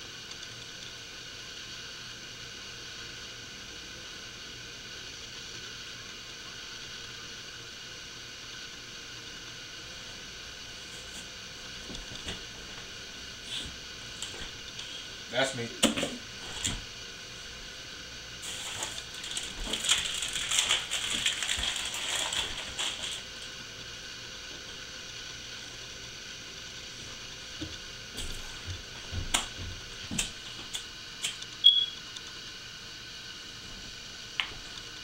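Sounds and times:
plastic package crinkling: 18.5s - 23.5s.

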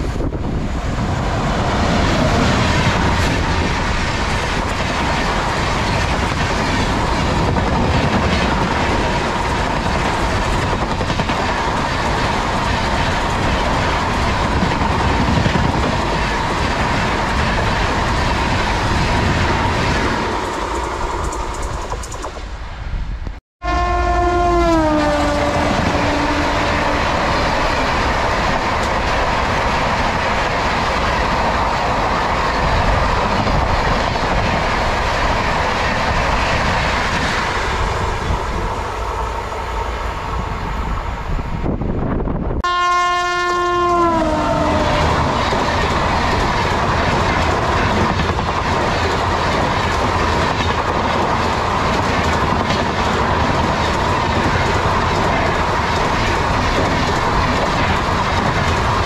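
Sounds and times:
train coaches rushing past: 0.0s - 23.1s, 24.4s - 42.5s, 43.6s - 59.0s
train horn blaring: 23.6s - 27.7s, 42.6s - 45.6s.

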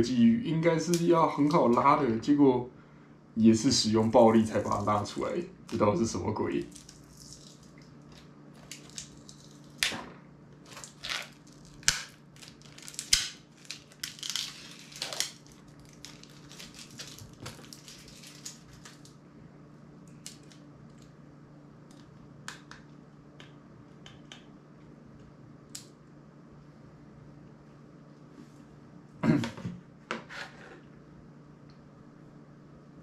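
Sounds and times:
crinkly scraping: 10.6s - 19.1s.

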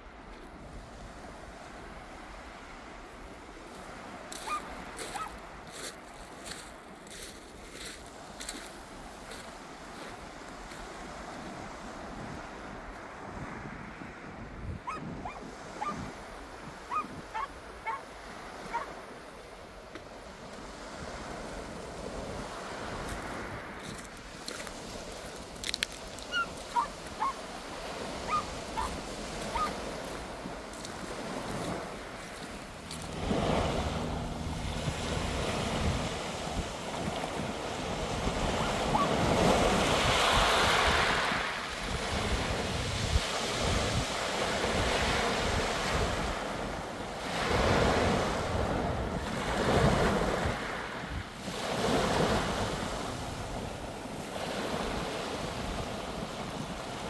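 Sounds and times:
waves breaking on shingle beach: 0.0s - 57.0s
wind on microphone: 8.0s - 57.0s
short high calls: 26.3s - 27.4s.

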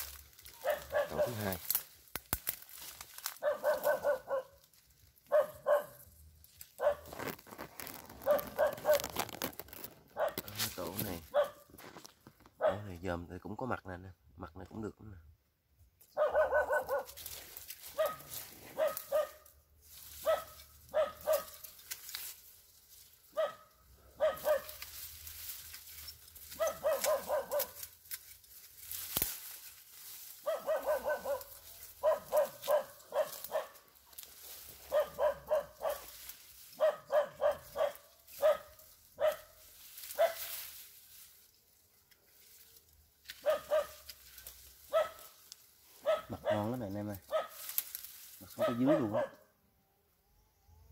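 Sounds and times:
dog barking: 0.5s - 1.6s, 3.4s - 4.6s, 5.2s - 6.1s, 6.8s - 7.2s, 8.2s - 9.1s, 10.2s - 10.5s, 11.2s - 11.7s, 12.6s - 13.0s, 16.1s - 17.2s, 17.9s - 19.5s, 20.2s - 21.6s, 23.3s - 24.8s, 26.5s - 27.8s, 30.4s - 33.9s, 34.8s - 39.6s, 40.2s - 40.5s, 43.4s - 44.1s, 44.9s - 45.4s, 46.0s - 47.6s, 48.5s - 49.5s.

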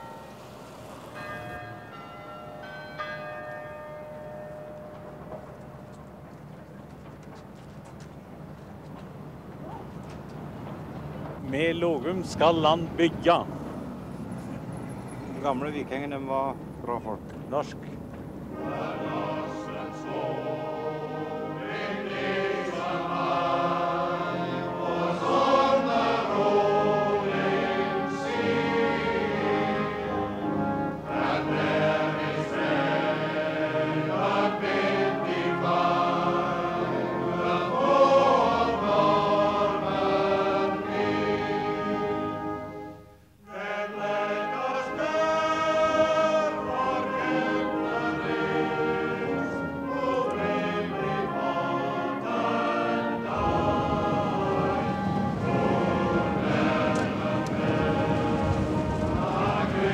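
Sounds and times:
choir singing: 0.0s - 1.6s, 18.5s - 59.9s.

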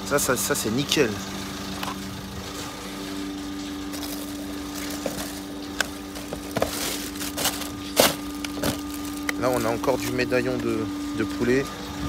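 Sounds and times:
steady low hum: 0.0s - 12.0s
plastic packaging crackling: 3.8s - 10.3s.

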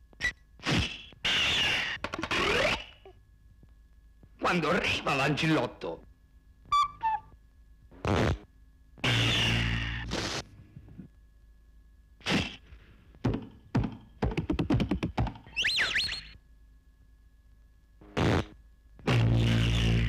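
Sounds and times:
wobbling swooping whistle: 15.5s - 16.4s.

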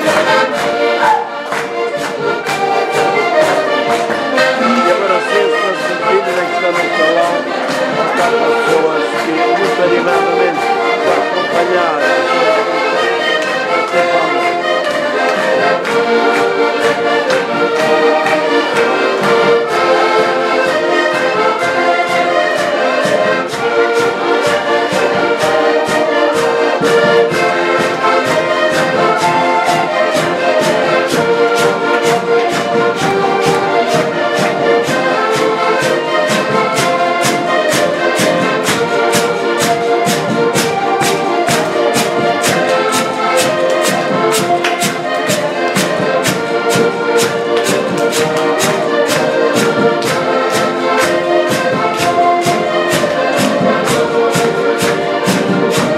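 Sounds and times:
quick percussive beat: 0.0s - 12.6s, 23.0s - 55.9s
accordions playing folk tune: 0.0s - 55.9s.

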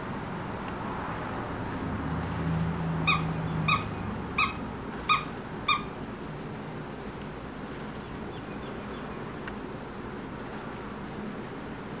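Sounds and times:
squeaky toy squeaking: 3.0s - 6.0s.

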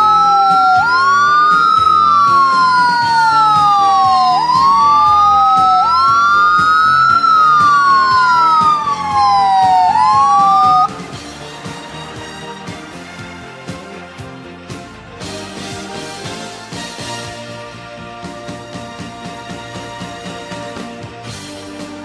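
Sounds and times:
emergency sirens wailing: 0.0s - 12.0s.

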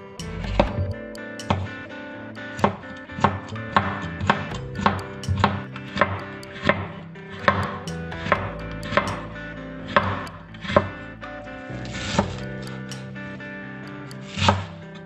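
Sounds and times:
soft background music: 0.0s - 15.0s
knife chopping on wooden board: 2.6s - 9.2s, 10.0s - 10.9s, 14.4s - 14.7s.

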